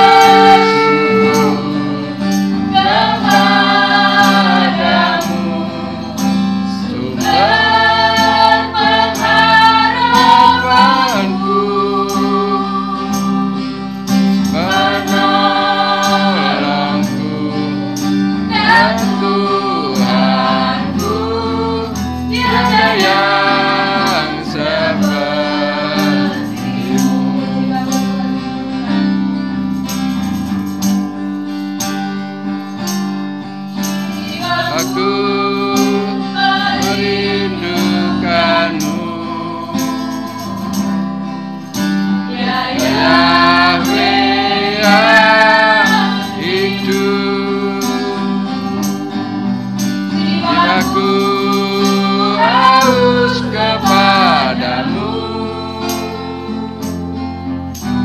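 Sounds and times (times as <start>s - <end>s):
woman singing through microphone: 0.0s - 5.9s, 7.0s - 13.7s, 18.5s - 28.8s, 34.2s - 40.7s, 42.4s - 47.6s, 50.2s - 56.0s
acoustic guitar: 0.0s - 58.0s.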